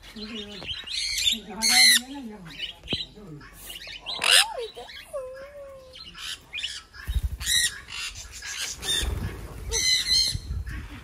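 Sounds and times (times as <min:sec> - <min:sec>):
parrots squawking: 0:00.9 - 0:02.2, 0:03.5 - 0:05.1.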